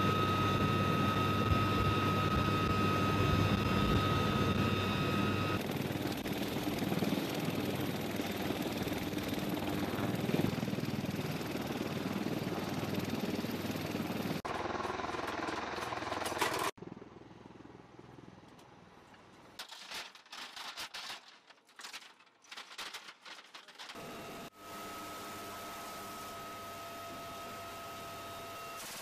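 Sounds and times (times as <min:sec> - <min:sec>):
helicopter engine and rotor: 0:00.0 - 0:18.8, 0:24.0 - 0:28.8
short rattles and clicks: 0:19.6 - 0:24.0.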